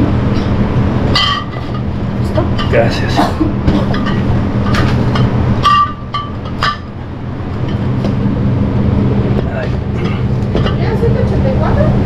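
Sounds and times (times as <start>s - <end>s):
steady low hum: 0.0s - 12.0s
glass bottles clinking: 1.1s - 1.9s, 2.6s - 7.0s.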